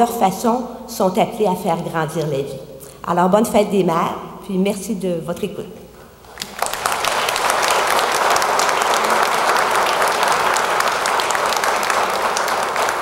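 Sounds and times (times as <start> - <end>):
audience applauding: 6.3 - 13.0.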